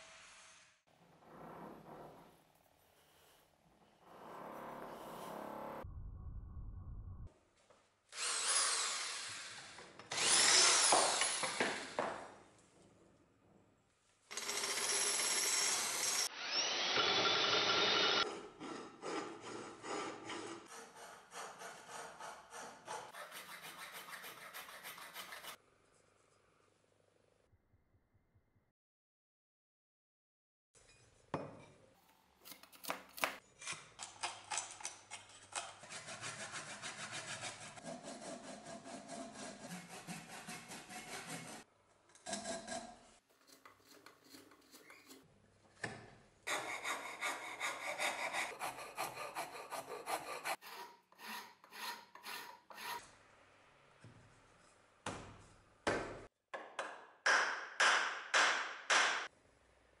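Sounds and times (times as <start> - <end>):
file scraping wooden handle: 18.2 - 25.6, 35.6 - 45.3, 46.4 - 53.1.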